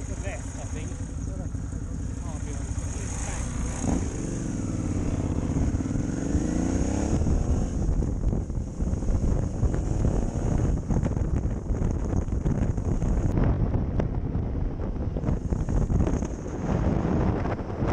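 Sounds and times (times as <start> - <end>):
motorcycle engine accelerating: 0.0 - 17.9
wind buffeting microphone: 0.0 - 17.9.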